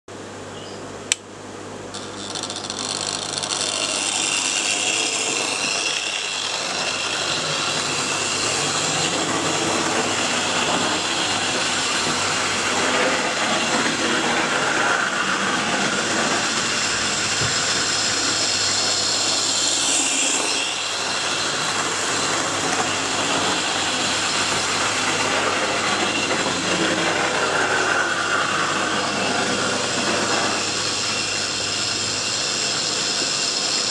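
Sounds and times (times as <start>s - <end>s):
sharp click: 1.1s - 1.3s
model train motor whirring: 1.9s - 33.9s
wheels rattling on rails: 1.9s - 33.9s.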